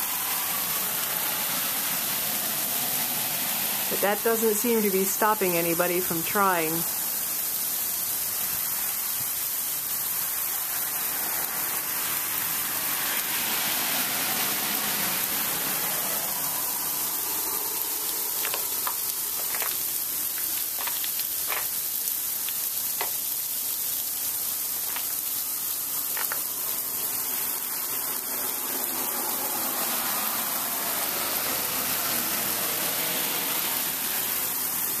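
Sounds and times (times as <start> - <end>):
sleet falling hiss: 17.0 - 23.4, 24.4 - 27.7
pellets ticking: 18.3 - 22.1.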